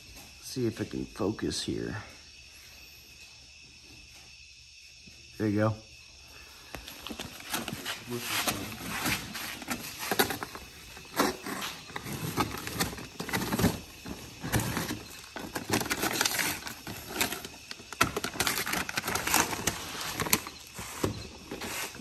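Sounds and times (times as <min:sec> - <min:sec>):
cardboard and paper crinkling: 0:06.8 - 0:22.0.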